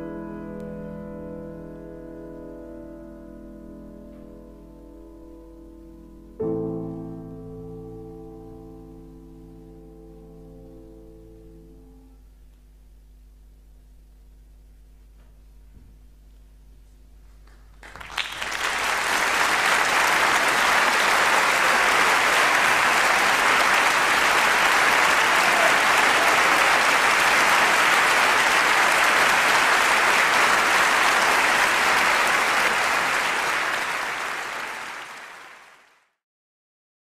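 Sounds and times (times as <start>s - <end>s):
faint piano chord: 0.0s - 12.4s
audience applauding: 17.4s - 36.1s.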